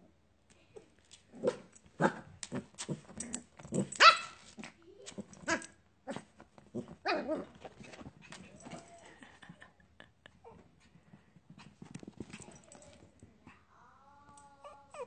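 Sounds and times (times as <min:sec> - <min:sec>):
small dogs barking and yipping: 0:04.0 - 0:04.5.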